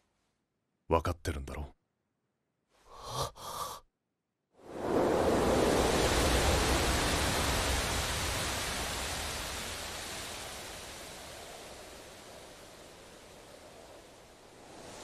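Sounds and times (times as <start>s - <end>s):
wind rushing over a field: 4.6s - 15.0s.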